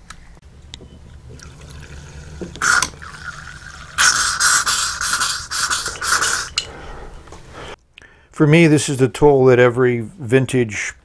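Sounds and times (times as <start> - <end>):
water squirting from bulb syringe: 1.3 - 6.6.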